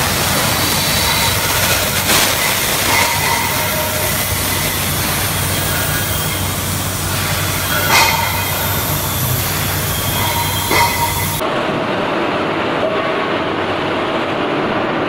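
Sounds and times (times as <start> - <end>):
broad hiss: 0.0 - 11.4
metallic squeals: 0.0 - 11.4
machine mechanical hum: 0.0 - 15.0.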